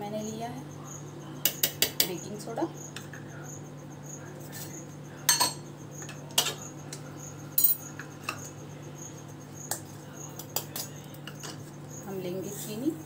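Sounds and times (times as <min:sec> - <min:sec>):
spoon clinking steel containers: 0:05.3 - 0:05.6.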